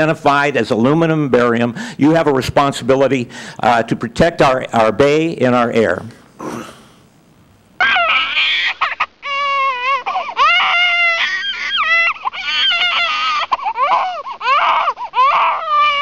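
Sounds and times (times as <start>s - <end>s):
infant crying: 7.8s - 16.0s.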